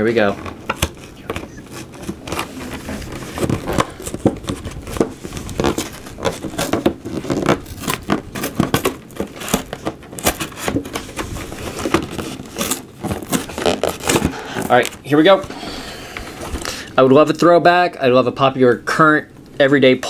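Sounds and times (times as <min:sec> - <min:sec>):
cardboard box tearing: 0:00.4 - 0:15.0.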